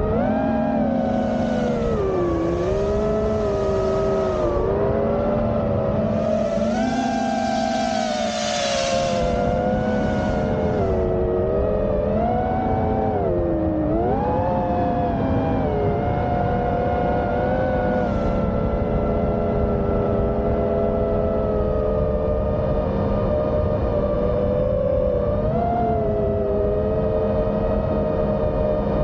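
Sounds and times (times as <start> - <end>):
quadcopter motors whining: 0.0 - 14.6, 17.8 - 19.6
rush of air: 6.0 - 11.1.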